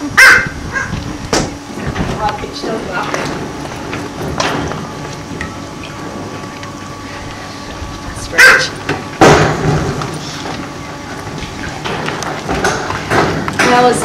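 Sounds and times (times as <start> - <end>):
penguin calling: 8.3 - 8.8.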